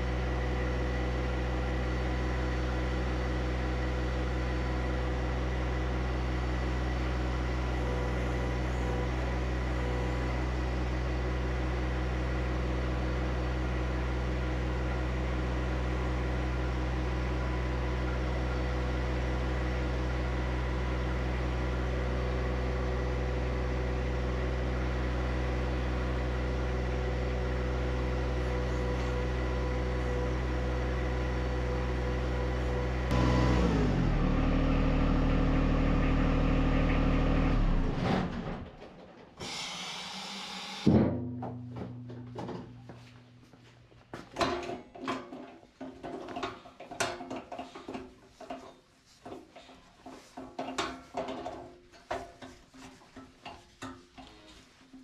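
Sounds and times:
tractor diesel engine running: 0.0 - 38.7.

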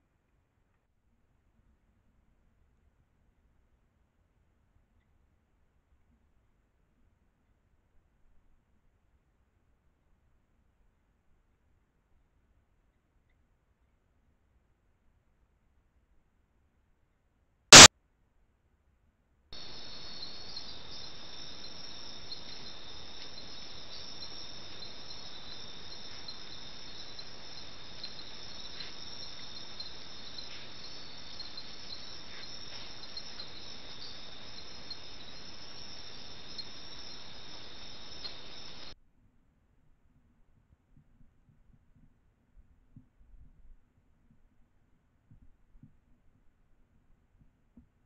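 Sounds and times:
night insects chorus: 19.6 - 38.9.

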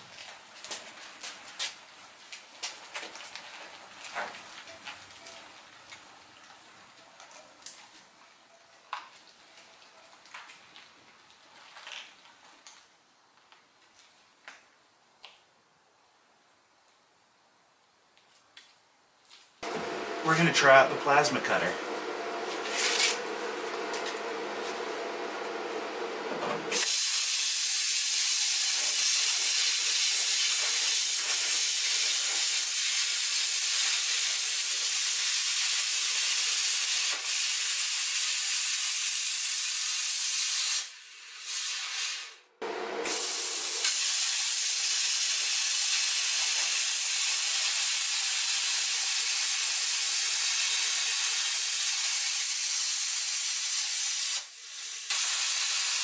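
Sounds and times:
plasma cutter hissing: 26.7 - 42.4, 43.0 - 56.0.

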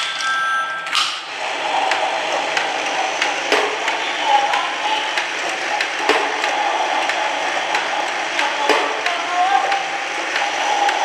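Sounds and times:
wheels clicking on track joints: 0.9 - 11.0
toy train motor whirring: 1.2 - 11.0.

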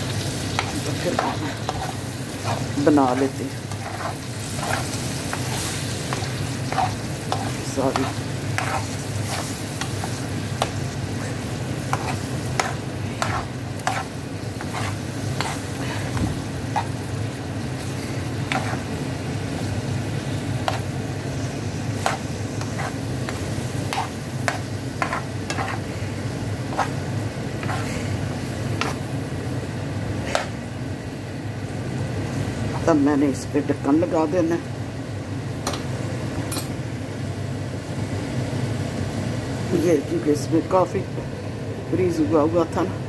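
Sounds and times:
vegetables sizzling: 0.0 - 41.4
steady low hum: 0.0 - 43.0
metal spoon scraping frying pan: 0.1 - 17.0, 17.8 - 18.9, 22.0 - 25.9, 26.7 - 27.0, 27.6 - 28.2, 28.8 - 29.0.

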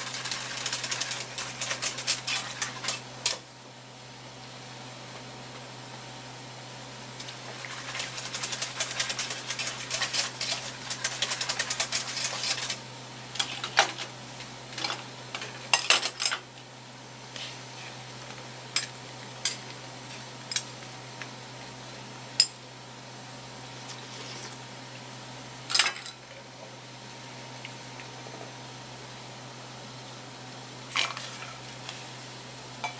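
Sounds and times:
utensils scraping a strainer: 0.0 - 3.4, 7.7 - 12.8.

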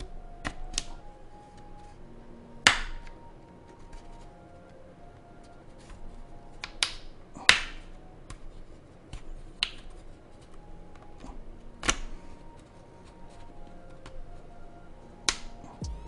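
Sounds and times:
plastic clips snapping loose: 0.0 - 1.0, 15.2 - 15.6.

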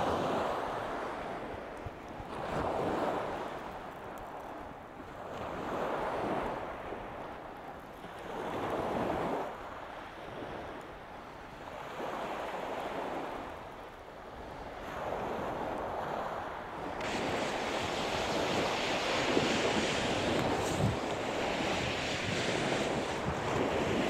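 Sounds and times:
small waves breaking on shingle: 16.9 - 24.0.

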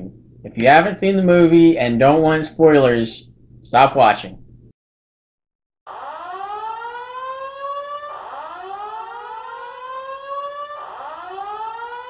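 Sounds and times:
wailing siren: 5.9 - 12.0.

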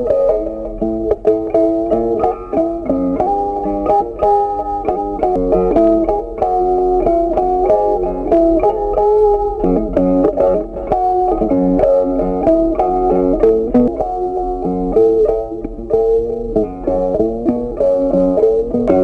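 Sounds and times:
plucked guitar melody: 0.0 - 19.0.

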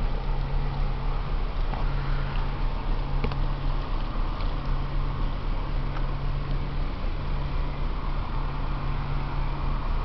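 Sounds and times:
deep rumble: 0.0 - 10.0
ship engines humming: 0.0 - 10.0.

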